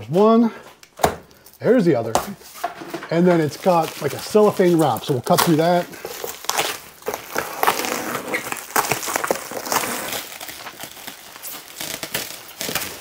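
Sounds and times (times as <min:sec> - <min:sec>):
plastic wrap crinkling: 0:01.3 - 0:13.0.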